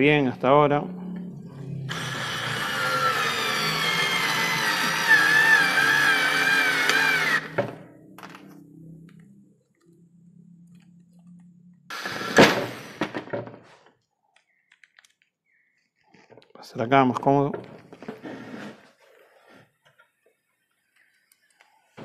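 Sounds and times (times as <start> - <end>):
cordless screwdriver motor whining: 1.9 - 7.6.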